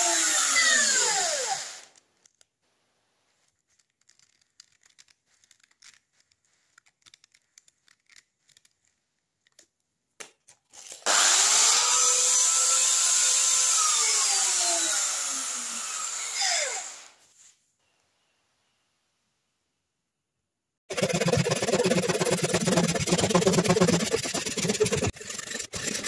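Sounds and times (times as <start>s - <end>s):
bench grinder whining: 0.0s - 1.9s, 11.1s - 17.2s, 20.9s - 26.0s.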